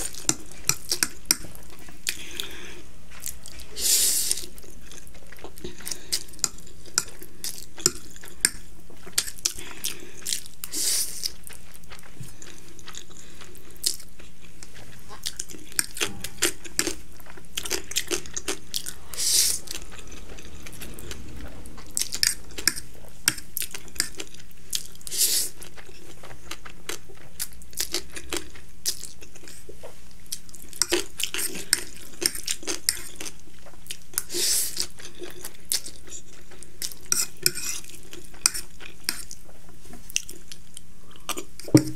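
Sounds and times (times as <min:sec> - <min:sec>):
chewing: 0:00.0 - 0:41.8
fork scraping plate: 0:18.1 - 0:24.3, 0:37.1 - 0:37.9.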